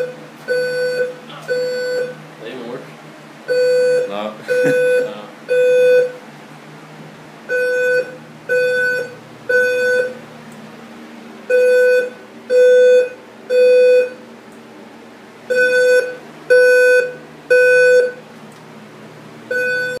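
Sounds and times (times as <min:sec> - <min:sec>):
fire alarm buzzy beeps: 0:00.0 - 0:02.2, 0:03.5 - 0:06.2, 0:07.5 - 0:10.2, 0:11.5 - 0:14.2, 0:15.5 - 0:18.3, 0:19.5 - 0:20.0.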